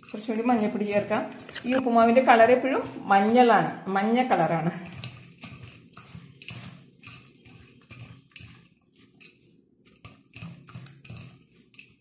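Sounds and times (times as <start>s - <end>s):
rice flakes rustling: 4.4s - 12.0s.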